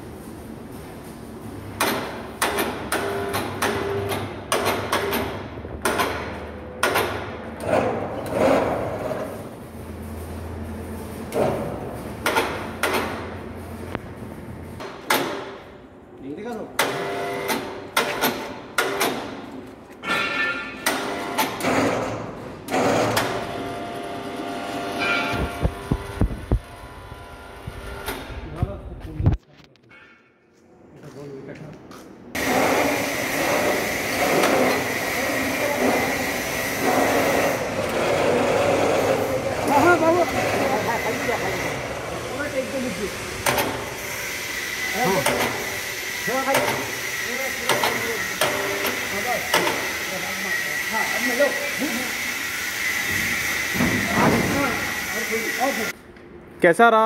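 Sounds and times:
sharp knocks and clanks: 1.7s - 9.4s, 11.3s - 13.4s, 14.8s - 15.7s, 16.8s - 23.6s, 25.0s - 26.6s, 43.4s - 44.0s, 45.2s - 47.0s, 47.6s - 50.0s, 53.0s - 54.7s.

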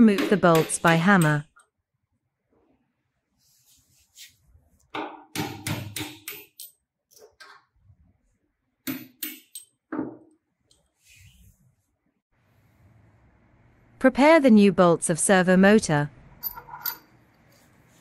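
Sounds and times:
hammer knocking bolts through wood: 5.0s - 6.6s.

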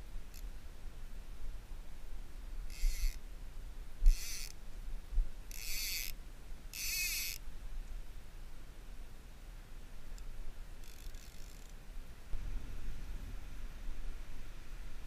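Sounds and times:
fly reel ratchet buzzing: 2.7s - 3.2s, 4.0s - 4.6s, 5.5s - 7.4s, 10.8s - 11.8s.

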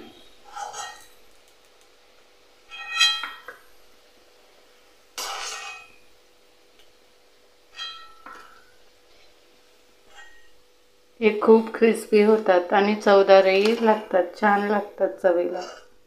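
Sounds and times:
metal spoon clinking on pan: 7.7s - 8.6s.

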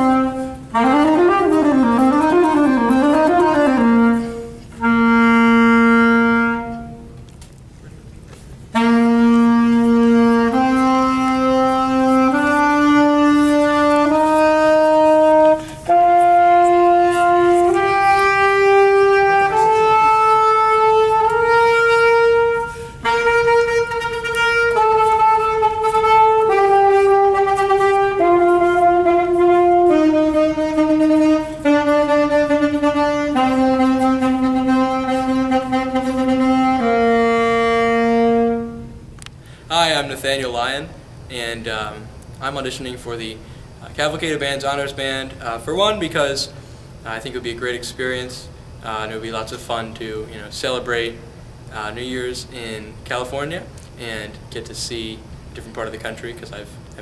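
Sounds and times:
saxophone playing a slow scale: 0.0s - 7.3s, 8.6s - 39.2s.

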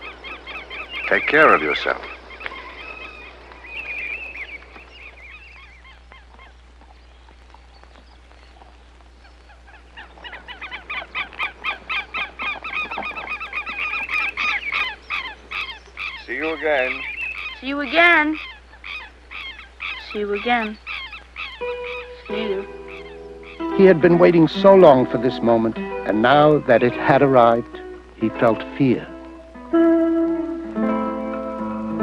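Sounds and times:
birds calling: 0.0s - 32.0s
louder longer bird cries: 9.2s - 23.8s.

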